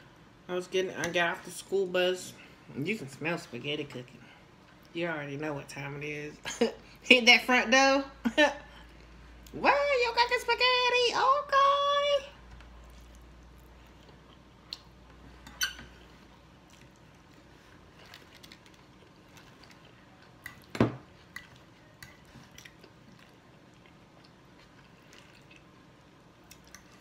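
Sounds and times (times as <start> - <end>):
spaghetti chewing and slurping: 16.0 - 27.0.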